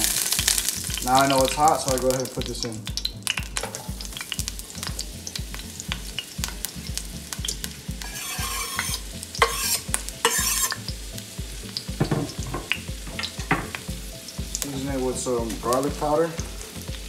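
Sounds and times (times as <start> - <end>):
food sizzling in butter: 0.0 - 17.0
knife scraping cutting board: 8.0 - 10.8.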